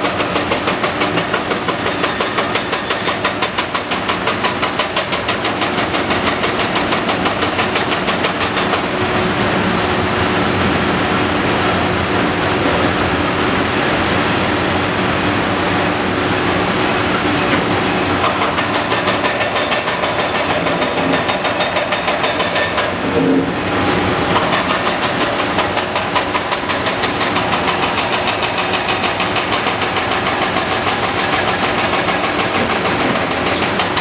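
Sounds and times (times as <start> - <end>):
excavator pulsing clatter: 0.0 - 9.6, 17.1 - 34.0
excavator diesel engine: 0.0 - 34.0.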